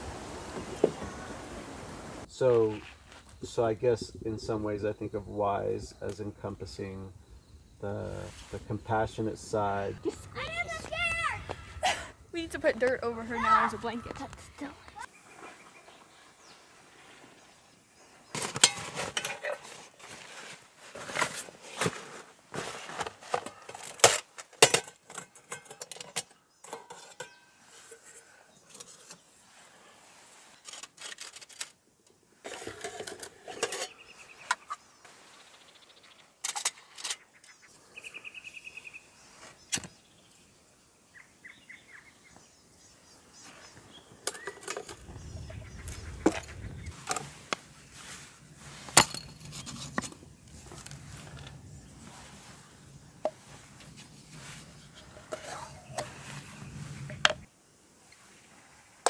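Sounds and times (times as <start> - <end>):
metal cookware clinking: 24.6 - 27.5
low rumble: 45.0 - 47.1.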